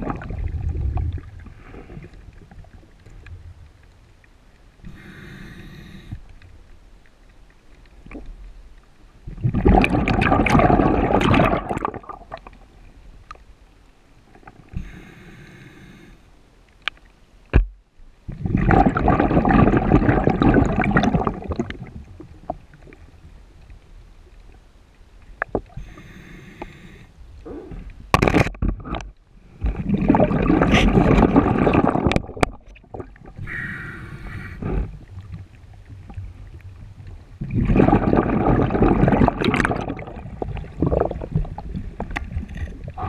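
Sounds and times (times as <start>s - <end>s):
regulator inhale hiss: 4.8s - 6.3s, 14.7s - 16.3s, 25.8s - 27.9s, 33.4s - 35.0s
exhaust bubbles rushing: 9.4s - 12.2s, 18.4s - 21.7s, 29.8s - 32.5s, 37.4s - 42.1s.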